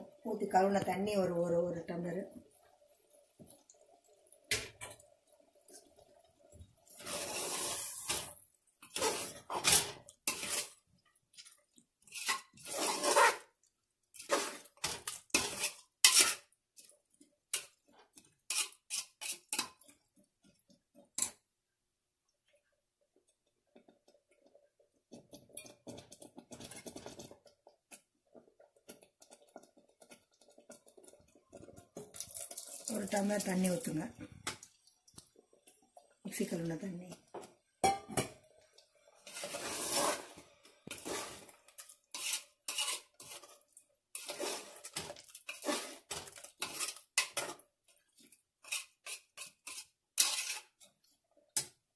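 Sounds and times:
spoon scraping metal pot: 6.9s - 10.8s, 11.4s - 16.9s, 17.5s - 20.0s, 39.2s - 51.0s.

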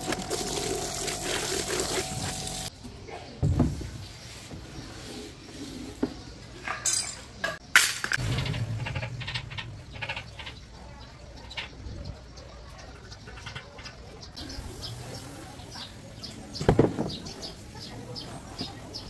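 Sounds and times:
low thump: 8.2s - 10.8s
low rumble: 8.2s - 12.2s.

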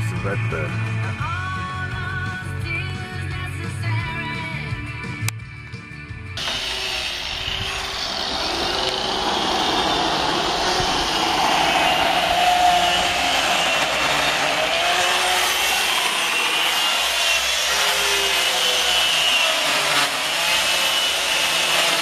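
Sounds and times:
chainsaw cutting wood: 6.4s - 22.0s.

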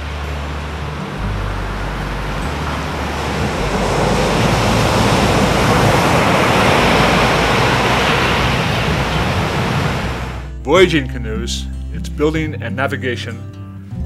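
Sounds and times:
ocean wave washing: 0.0s - 10.5s
low held tones: 0.0s - 10.6s.

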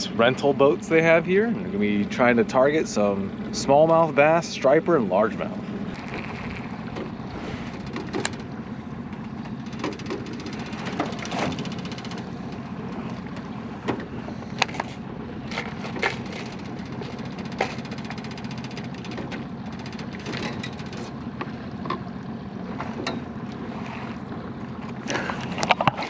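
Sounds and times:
steady low hum: 0.0s - 26.0s
rod and tackle clicks: 5.9s - 8.5s, 9.1s - 22.1s
fishing reel ticking: 9.5s - 12.6s, 16.0s - 21.1s.

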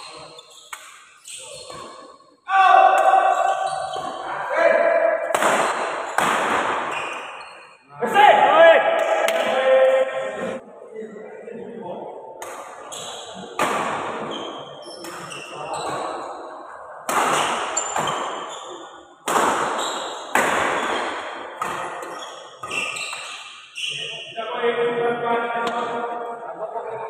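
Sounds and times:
shoes squeaking on court: 0.0s - 2.3s, 3.1s - 4.4s, 6.8s - 7.8s, 12.8s - 13.4s, 14.2s - 16.3s, 17.7s - 19.0s, 19.8s - 21.0s, 21.6s - 24.3s
racket hitting shuttlecock: 0.7s - 2.1s, 5.1s - 7.4s, 17.0s - 23.6s
voices shouting: 2.5s - 5.3s.

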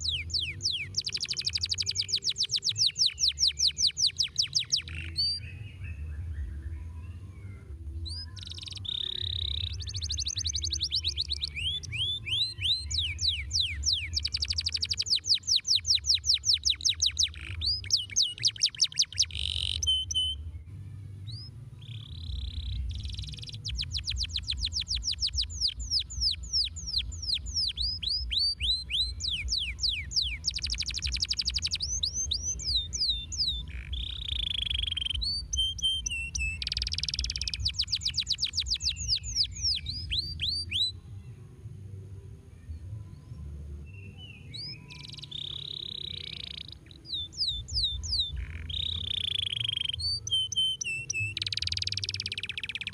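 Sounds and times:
canary singing trills: 0.0s - 20.6s, 21.2s - 41.0s, 42.9s - 52.9s.

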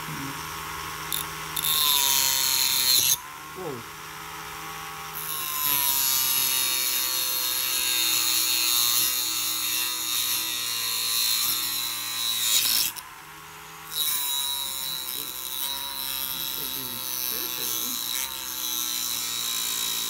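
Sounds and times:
rotary tool motor whine: 0.0s - 20.0s
cutting wheel hissing through plastic: 16.3s - 18.0s.

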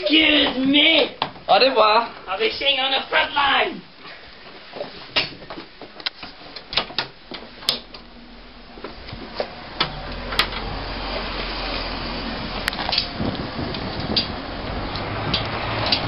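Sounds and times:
footsteps: 3.9s - 11.4s
front door clicking: 6.6s - 8.1s, 8.8s - 10.8s
low rumble of outdoor air: 7.2s - 16.0s.

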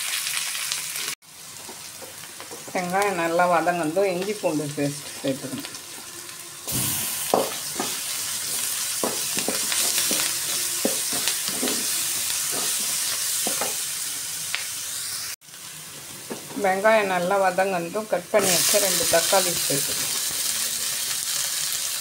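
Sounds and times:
onions sizzling in hot oil: 0.0s - 22.0s
wooden spatula scraping a pan: 7.3s - 13.8s.

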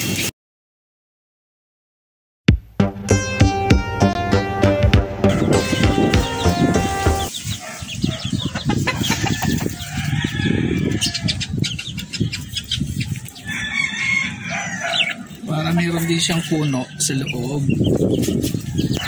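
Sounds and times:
music: 2.5s - 7.3s
chicken clucking and calling: 5.3s - 19.0s.

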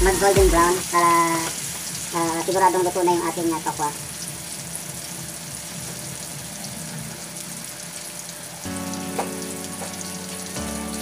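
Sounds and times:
tofu sizzling in hot oil: 0.2s - 11.0s
music with sustained notes: 8.1s - 11.0s.

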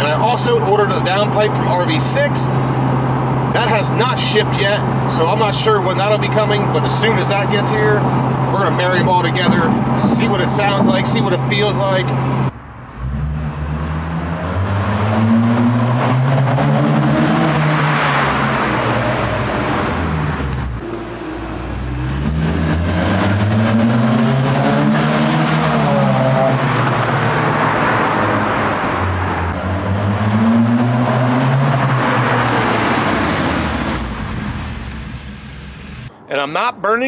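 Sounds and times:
car exhaust revving in a tunnel: 8.9s - 36.1s.

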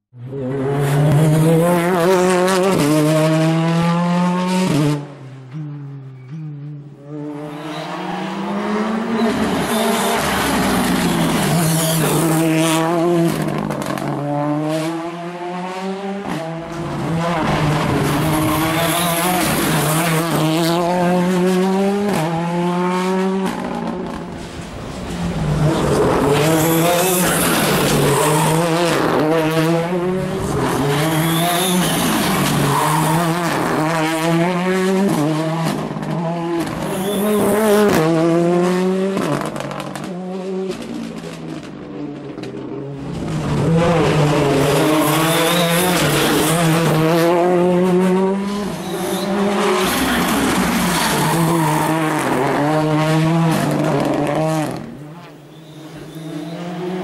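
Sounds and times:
rally car engine revving: 0.2s - 57.0s
tyres squealing: 48.7s - 51.9s.

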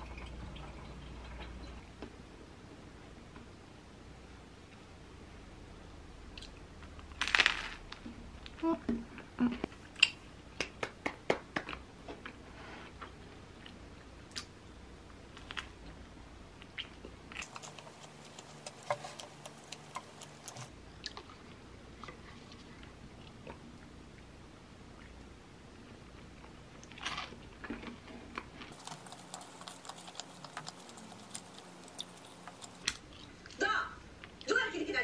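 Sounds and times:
crunchy bites: 6.4s - 8.0s, 17.4s - 20.7s, 28.7s - 33.0s
chewing: 16.6s - 21.4s, 26.8s - 33.5s.

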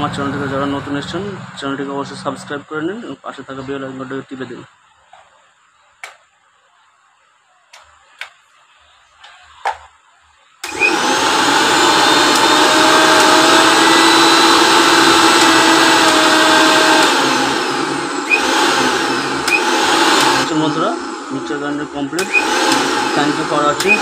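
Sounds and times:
mixer grinder motor running: 10.6s - 24.0s.

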